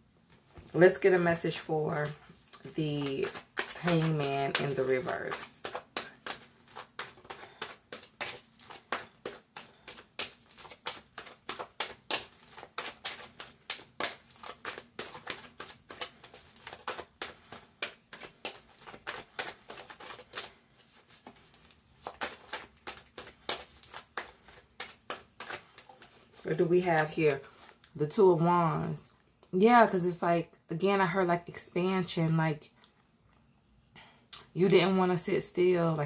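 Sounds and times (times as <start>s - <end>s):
cards being shuffled: 0.6s - 27.8s.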